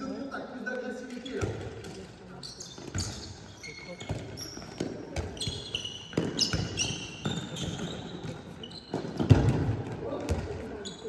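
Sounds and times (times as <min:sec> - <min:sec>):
shoes squeaking on floor: 0:01.1 - 0:11.0
ball bouncing: 0:04.0 - 0:10.7.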